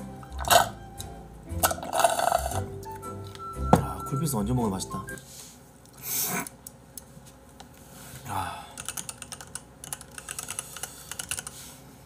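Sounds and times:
typing on a computer keyboard: 0:08.8 - 0:11.6.

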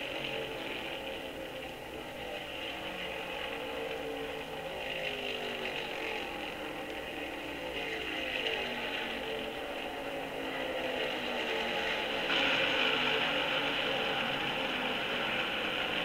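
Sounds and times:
race car engines passing by: 0:00.0 - 0:16.0.

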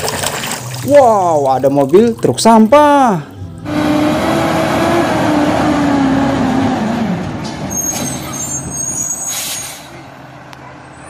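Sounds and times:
short air hisses: 0:09.2 - 0:10.0.

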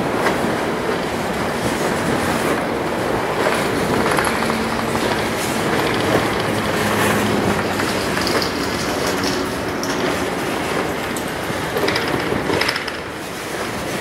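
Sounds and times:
train wheels on rails: 0:00.0 - 0:14.0.

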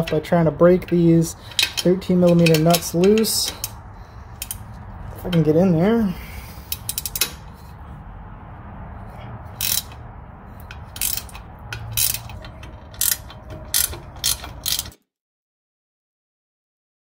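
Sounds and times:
socket ratchet clicking: 0:04.4 - 0:04.7, 0:06.7 - 0:07.5, 0:09.6 - 0:15.0.

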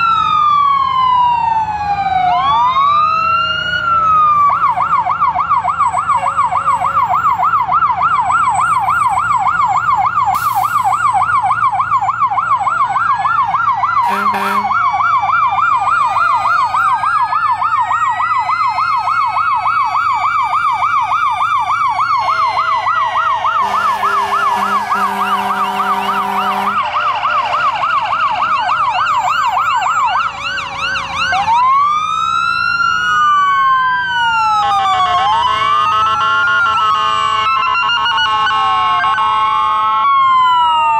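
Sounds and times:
fire truck sirens yelping and wailing: 0:00.0 - 0:40.9
horn blasts: 0:14.0 - 0:14.8, 0:23.6 - 0:27.6.

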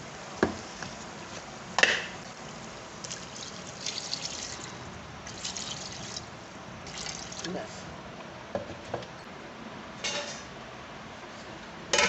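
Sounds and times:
water poured into a metal pot: 0:03.0 - 0:07.5.

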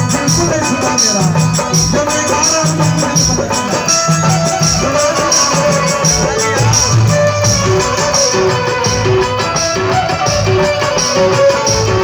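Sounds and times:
drum beat: 0:00.0 - 0:12.0
live band music: 0:00.0 - 0:12.0.

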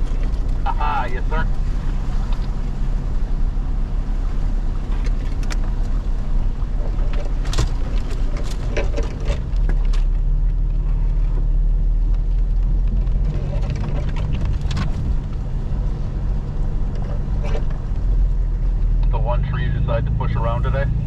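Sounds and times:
vehicle engine running: 0:00.0 - 0:21.0
sharp knocks and scrapes: 0:06.7 - 0:10.1, 0:12.9 - 0:15.4, 0:16.9 - 0:18.2.

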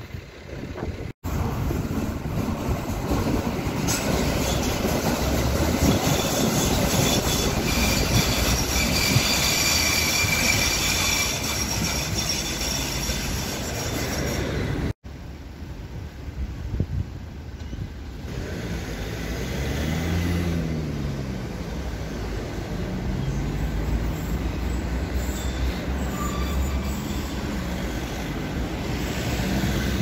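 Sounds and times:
wheels squealing: 0:00.0 - 0:14.9, 0:21.4 - 0:30.0
light-rail car rumbling on track: 0:00.0 - 0:30.0.

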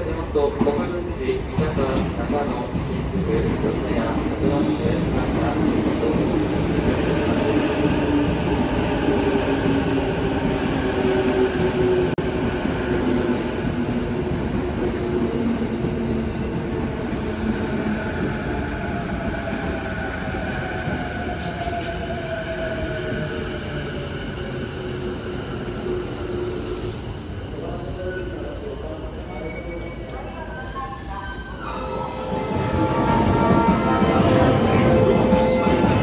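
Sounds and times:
train wheels rumbling on rails: 0:00.5 - 0:24.6.

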